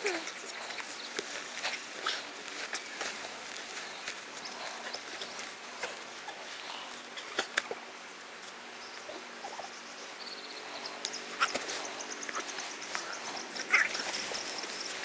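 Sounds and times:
steady hiss: 0.0s - 15.0s.

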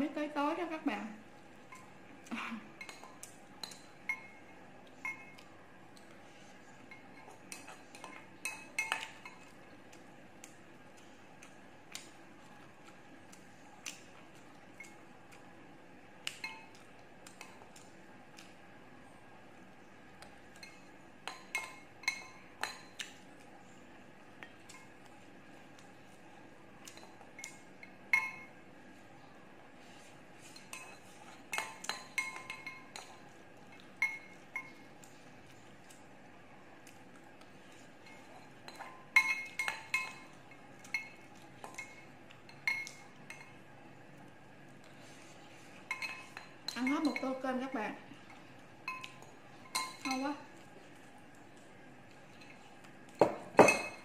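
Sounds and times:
utensils clinking against glass bowl: 26.9s - 28.5s, 30.5s - 34.8s, 38.0s - 43.6s, 45.9s - 47.4s, 48.8s - 50.4s, 53.2s - 54.0s.

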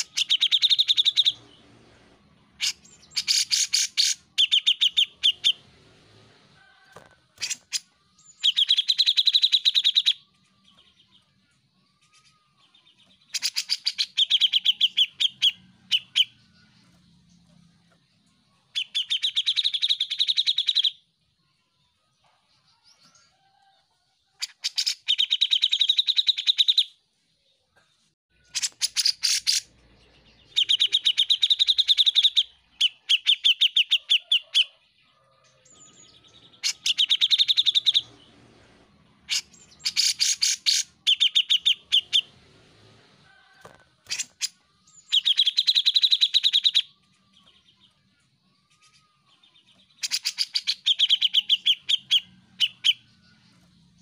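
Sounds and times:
bird singing chattering notes: 0.0s - 1.4s, 2.6s - 5.6s, 7.4s - 11.2s, 12.0s - 17.4s, 28.4s - 34.6s, 35.8s - 38.2s, 39.3s - 42.3s, 44.1s - 48.0s, 48.7s - 54.0s.

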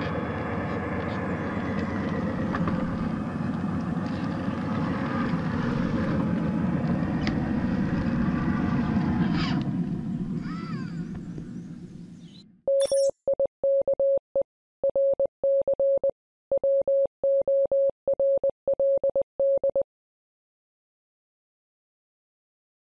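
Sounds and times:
electronic beep pulses: 12.7s - 14.2s.

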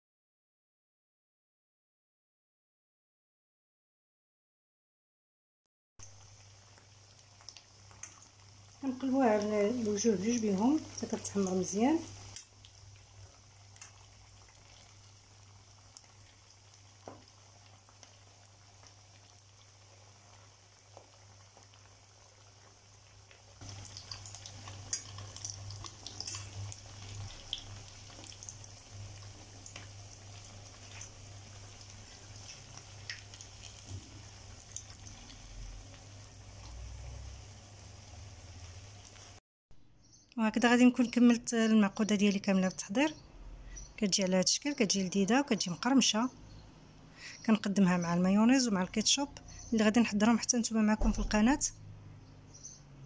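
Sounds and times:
croquettes sizzling in oil: 6.0s - 39.4s.

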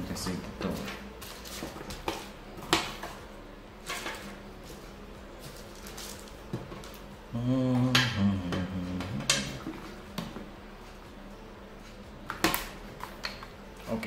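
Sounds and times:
paper and plastic rustling: 0.6s - 2.3s, 5.4s - 7.0s.

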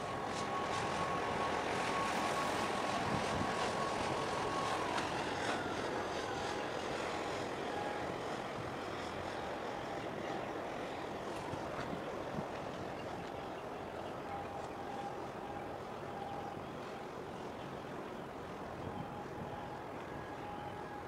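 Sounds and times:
distant engine drone: 0.0s - 21.0s
outdoor noise: 0.0s - 21.0s
thin high whine: 0.0s - 21.0s.

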